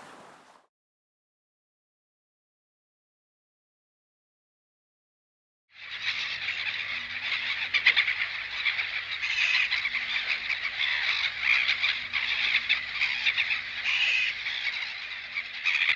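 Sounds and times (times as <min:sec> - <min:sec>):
animal croaking chorus: 0:05.8 - 0:15.9.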